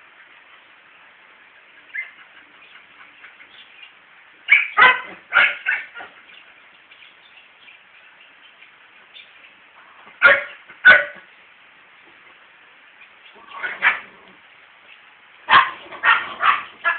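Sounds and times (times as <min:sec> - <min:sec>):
dog barking: 0:04.5 - 0:06.2, 0:10.2 - 0:11.3, 0:13.5 - 0:14.1, 0:15.5 - 0:16.9.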